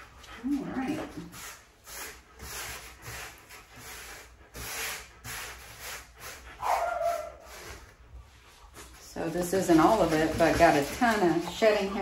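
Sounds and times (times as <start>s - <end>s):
pumice stone rubbing dog coat: 0.0s - 12.0s.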